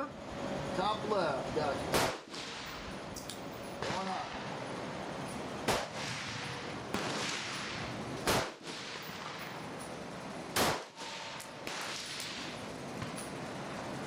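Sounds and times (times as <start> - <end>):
distant gunshot: 1.9 - 2.8, 5.6 - 9.4, 10.6 - 12.5
rifle shots: 1.9 - 2.8, 5.6 - 9.5, 10.5 - 12.5.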